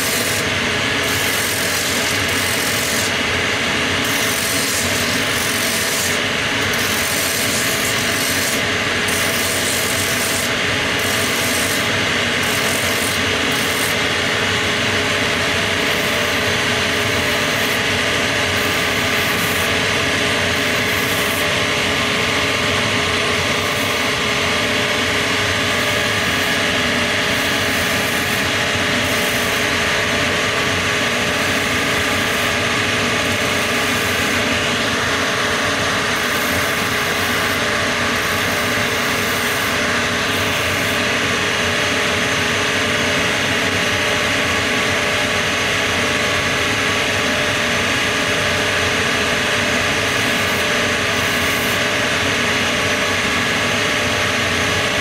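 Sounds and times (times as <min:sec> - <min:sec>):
sanding drums rasping on soles: 0:00.0 - 0:03.2, 0:04.0 - 0:14.0.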